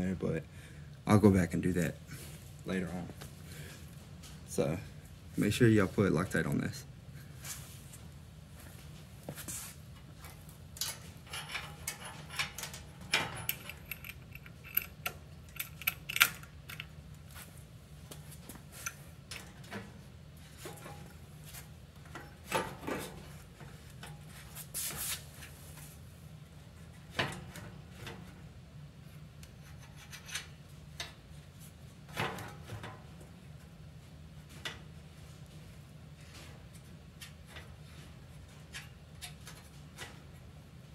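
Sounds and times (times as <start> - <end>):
steady low hum: 0.0 - 40.9
small metal clicks and knocks: 10.8 - 17.0.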